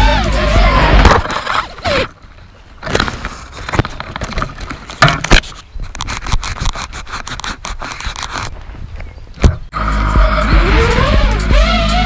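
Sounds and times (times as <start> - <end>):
quadcopter crackling rush: 0.0 - 2.2, 9.7 - 12.0.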